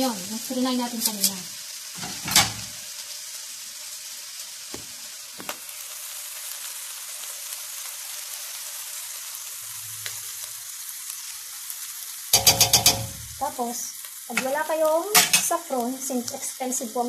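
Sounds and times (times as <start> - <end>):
rice pot sizzling: 0.0 - 17.0
metal spoon clicking on pot: 12.4 - 13.2.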